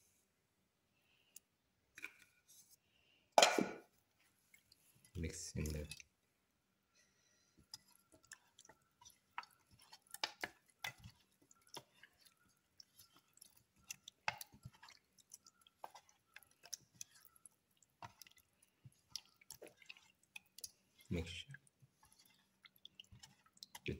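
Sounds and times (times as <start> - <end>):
wet squelching of fish: 7.3 - 23.9.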